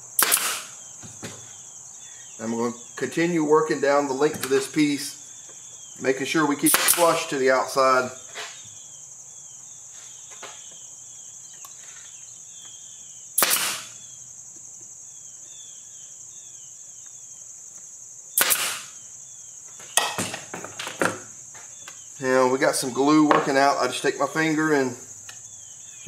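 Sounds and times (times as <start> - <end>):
nail gun shots: 0.2 - 0.8, 6.6 - 7.3, 13.4 - 14.0, 18.4 - 19.0.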